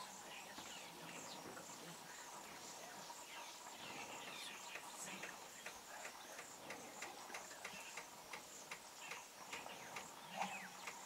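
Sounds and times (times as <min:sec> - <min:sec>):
regular ticking: 0:04.7 - 0:10.2.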